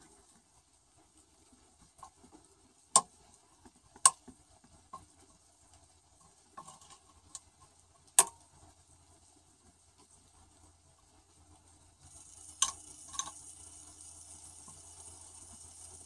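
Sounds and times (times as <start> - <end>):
faint ticks: 9.6 - 16.0.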